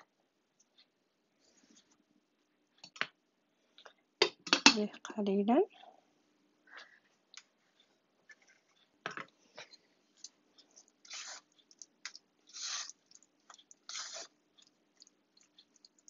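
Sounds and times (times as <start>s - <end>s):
wooden spoon stirring in saucepan: 9.6s - 16.0s.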